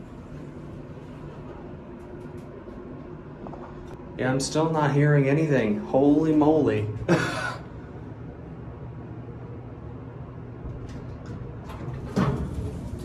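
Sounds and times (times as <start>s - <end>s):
elevator hum: 0.0s - 13.0s
elevator doors sliding open: 10.6s - 13.0s.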